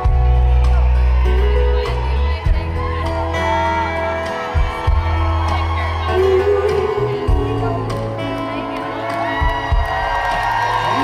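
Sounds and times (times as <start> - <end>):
deep bass notes: 0.0 - 11.0
live country band music: 0.0 - 11.0.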